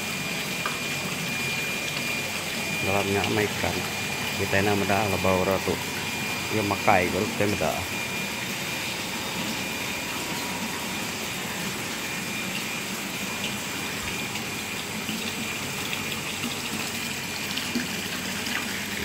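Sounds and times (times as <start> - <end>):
high whine of aeration blower: 0.0 - 19.0
water pouring and bubbling into tanks: 0.0 - 19.0.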